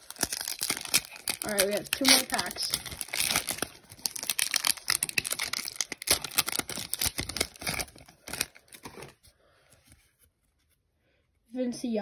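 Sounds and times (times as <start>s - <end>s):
foil wrapper tearing and crinkling: 0.0s - 9.1s.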